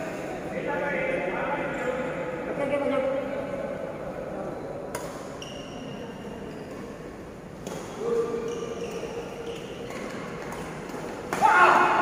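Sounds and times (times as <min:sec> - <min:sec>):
sports hall background noise: 0:00.0 - 0:12.0.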